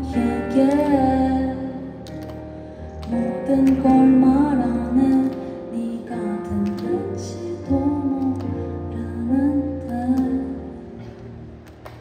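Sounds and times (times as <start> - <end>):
woman singing softly: 0.0 - 2.1, 3.1 - 11.2.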